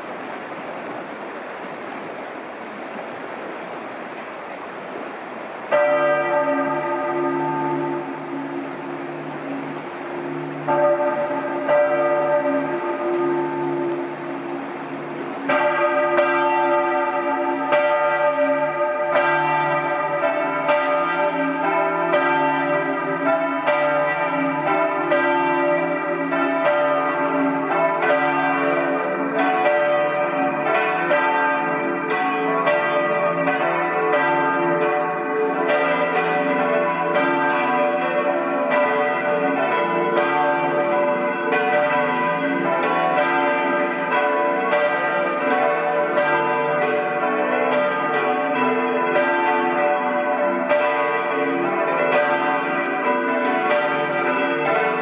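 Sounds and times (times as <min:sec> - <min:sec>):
church bells ringing: 0:05.7 - 0:55.0.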